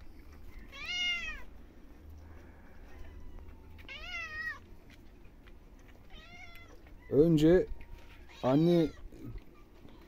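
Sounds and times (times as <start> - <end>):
cat meowing: 0.6 - 1.5, 2.9 - 4.6, 6.0 - 7.2, 8.1 - 9.4.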